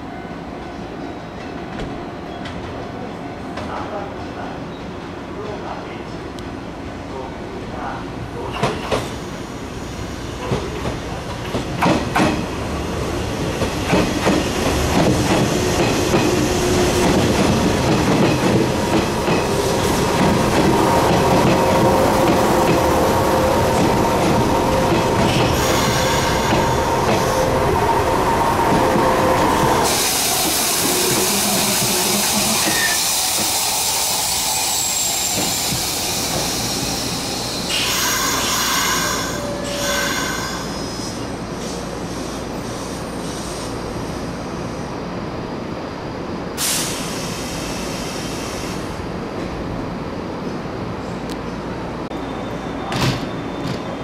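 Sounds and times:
train brakes squealing: 24.7 - 27.5, 29.8 - 43.8, 46.6 - 48.9, 52.1 - 54.0
air hissing: 29.8 - 38.8.

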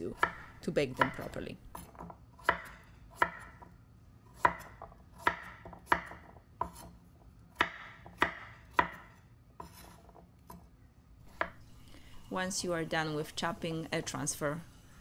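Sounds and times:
knife chopping on wooden board: 0.2 - 3.7, 4.4 - 10.7.

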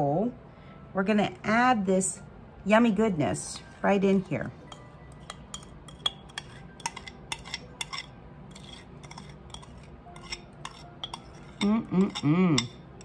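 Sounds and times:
spoon clinking against glass: 4.7 - 12.9
metal spoon scraping glass bowl: 4.7 - 13.0.

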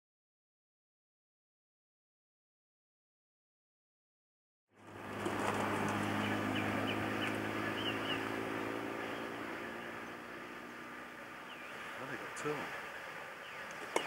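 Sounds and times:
birds chirping: 4.8 - 14.0
low outdoor hum: 4.8 - 14.0.

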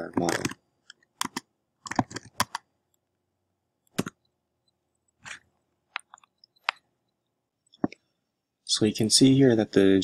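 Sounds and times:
computer keyboard keystrokes: 0.1 - 2.6.

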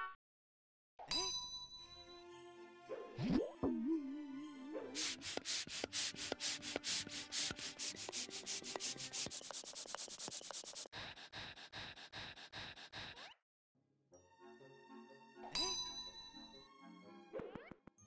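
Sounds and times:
hand air pump hissing strokes: 5.0 - 13.3.

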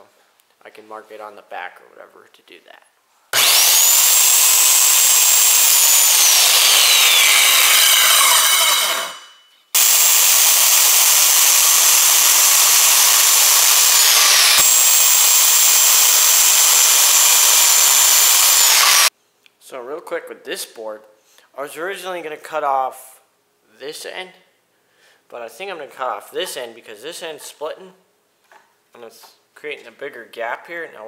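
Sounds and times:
circular saw cutting wood: 3.4 - 19.1.

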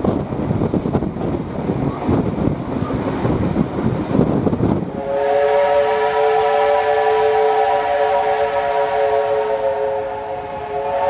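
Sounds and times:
steam locomotive whistle: 4.9 - 11.0.

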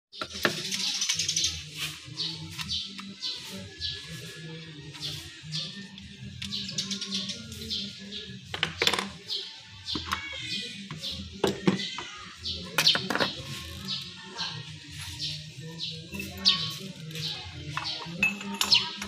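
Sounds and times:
bird chirps: 0.1 - 19.0
metal tools clinking on engine parts: 17.7 - 19.0.

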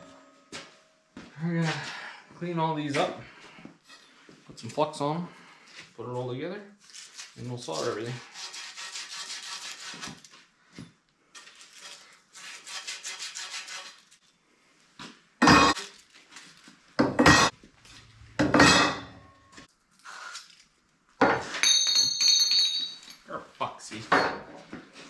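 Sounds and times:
copper pipe being scrubbed: 7.7 - 10.3, 11.8 - 14.2.

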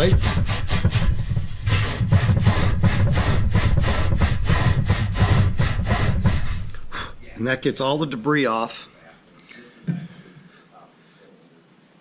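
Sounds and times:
abrasive pad scrubbing metal pipe: 0.0 - 8.3.

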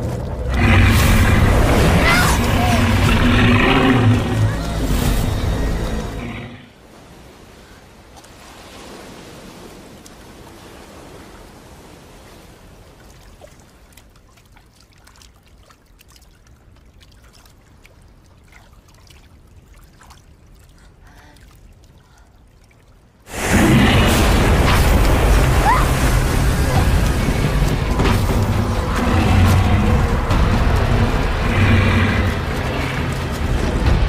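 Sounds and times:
water trickling: 12.8 - 34.0.

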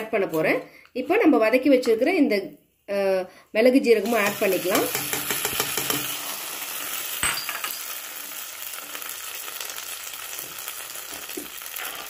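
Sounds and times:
hot ghee sizzling: 4.0 - 12.0.

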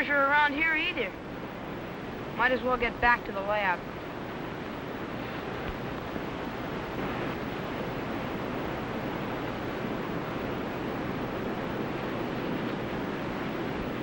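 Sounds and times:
ocean surf breaking: 0.0 - 14.0.

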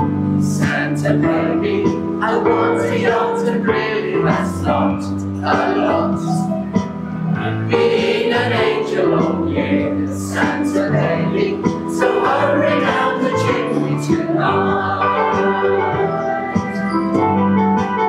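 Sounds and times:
electronic keyboard accompaniment: 0.0 - 18.0
choir singing: 0.4 - 6.5, 7.4 - 17.2.

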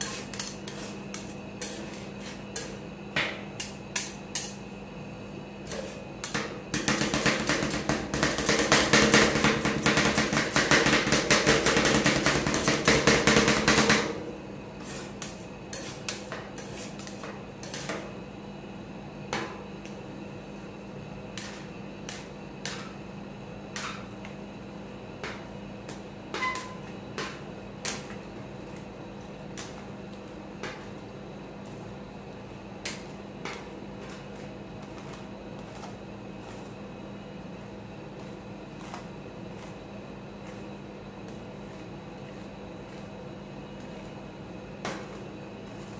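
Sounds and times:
spatula scrapes and taps: 0.0 - 4.6, 14.8 - 18.0, 32.8 - 36.8, 37.6 - 39.8
steady low hum: 0.0 - 45.9
metal spatulas chopping on metal plate: 5.7 - 14.2.

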